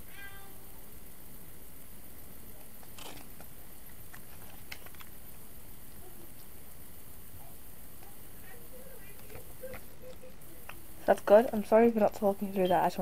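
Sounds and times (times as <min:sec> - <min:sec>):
steady hiss: 0:00.0 - 0:13.0
paper rustling: 0:04.1 - 0:05.1.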